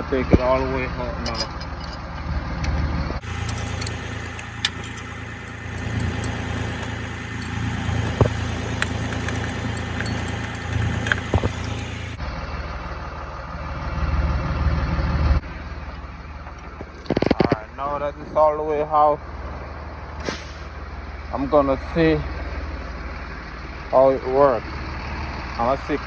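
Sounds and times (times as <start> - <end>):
truck engine idling: 0.0 - 26.0
wrench clicking: 3.4 - 12.2.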